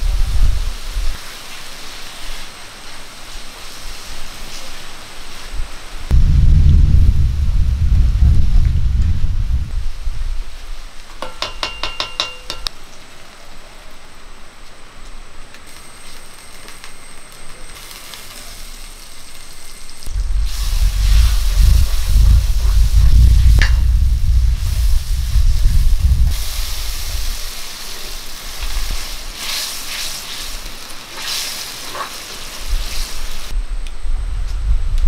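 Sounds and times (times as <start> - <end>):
low rumble: 6.1 - 10.7, 20.0 - 27.4, 33.5 - 35.0
metal spatula stirring: 11.2 - 12.7
ringing metal clinks: 11.2 - 12.7
food frying in a pan: 17.8 - 33.6.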